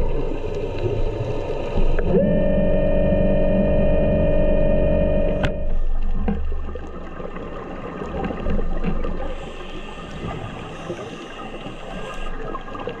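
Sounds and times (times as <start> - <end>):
low underwater rumble: 0.0 - 13.0
underwater crackle: 0.0 - 13.0
faint high tones: 2.0 - 5.8.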